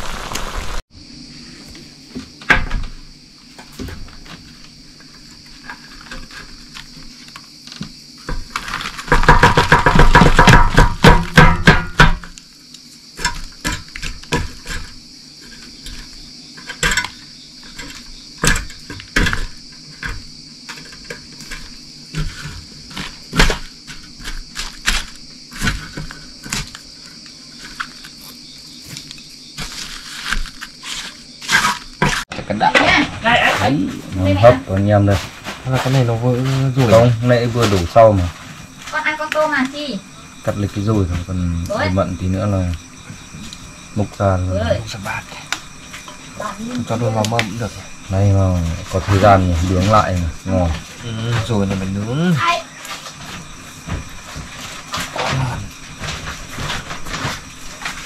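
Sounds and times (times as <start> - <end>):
high insect drone: 0.0 - 58.0
rapid knocking: 9.1 - 12.3
pots and utensils clinking: 13.2 - 23.6.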